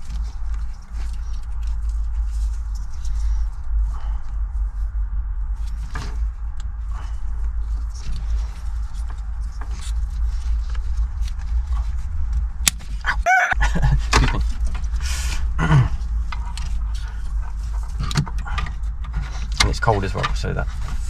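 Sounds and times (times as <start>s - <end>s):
steady low rumble: 0.0s - 21.0s
person grunting: 13.1s - 13.6s, 15.6s - 16.0s
person straining cry: 13.1s - 13.6s.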